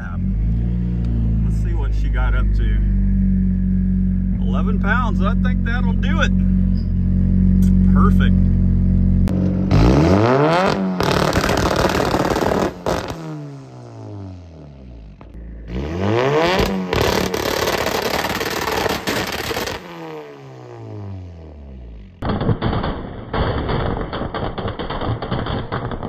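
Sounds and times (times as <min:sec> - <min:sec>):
car engine revving on rev limiter: 0:09.1 - 0:14.3, 0:15.6 - 0:21.2
exhaust pops: 0:09.2 - 0:13.4, 0:16.4 - 0:20.0, 0:22.2 - 0:26.0.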